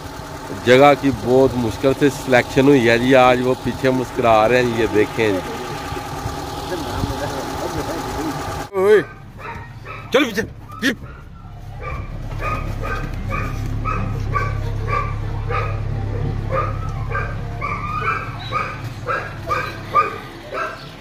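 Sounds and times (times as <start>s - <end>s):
vehicle engine idling: 0.0s - 21.0s
dog barking rapidly: 8.9s - 21.0s.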